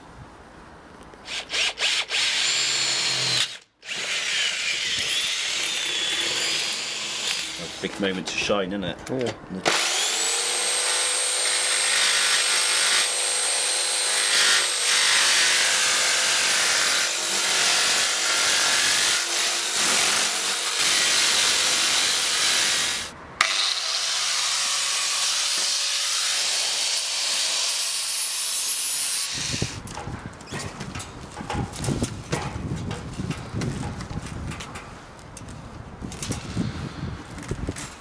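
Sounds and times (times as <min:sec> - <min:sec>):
jigsaw cutting metal sheet: 0:01.3 - 0:07.9, 0:09.7 - 0:29.8.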